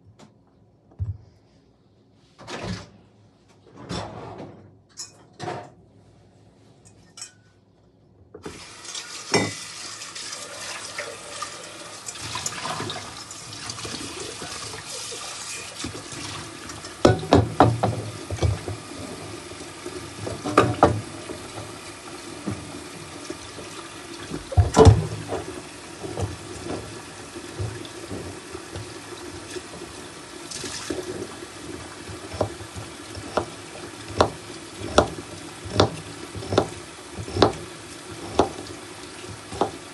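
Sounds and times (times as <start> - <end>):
tap water running: 8.4 - 39.9
kitchenware knocking and clattering: 9.3 - 9.7, 15.5 - 19.2, 20.2 - 21.7, 24.3 - 26.9, 30.9 - 39.9.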